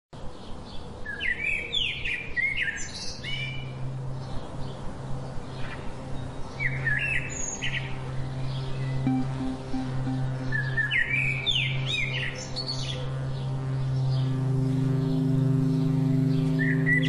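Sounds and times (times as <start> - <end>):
low synth tone pulsing: 8.0 - 17.0
songbird chirping: 9.1 - 11.8.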